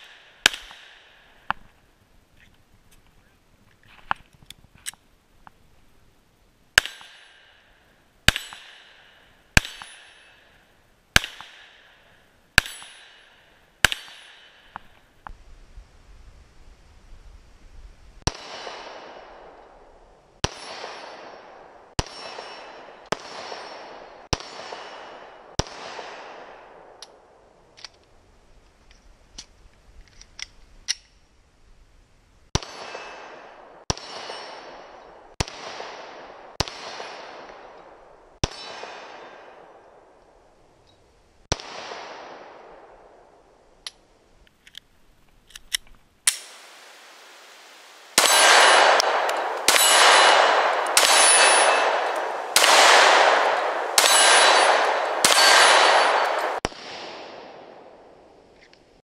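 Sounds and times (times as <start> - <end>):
pistol shots echoing: 0.0 - 1.4, 8.3 - 10.5, 11.1 - 14.9, 20.4 - 27.0, 32.6 - 40.2, 41.5 - 43.3, 48.1 - 58.3
steel targets ringing: 48.2 - 56.6.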